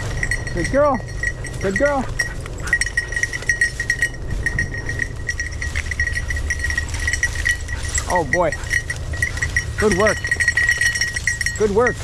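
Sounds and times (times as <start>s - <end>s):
dog collar bell jingling: 0.0s - 12.0s
steady low rumble: 0.0s - 12.0s.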